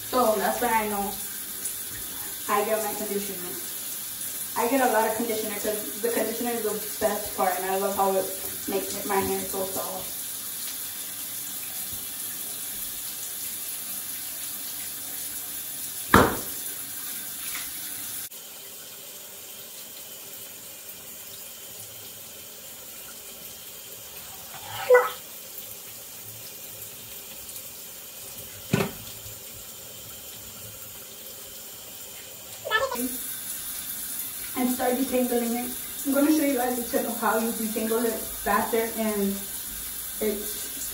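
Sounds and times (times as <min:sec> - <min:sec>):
shower spray running: 0:00.0 - 0:18.3, 0:23.7 - 0:25.3, 0:32.0 - 0:40.9.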